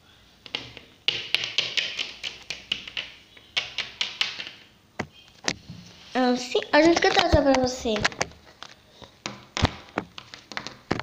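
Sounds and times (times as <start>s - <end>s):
plastic figurines tapping: 0.5s - 4.6s.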